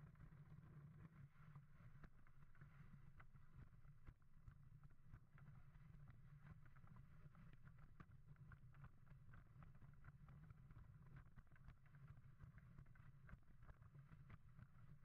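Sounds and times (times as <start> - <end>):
light ticks from sled: 0.0 - 15.0.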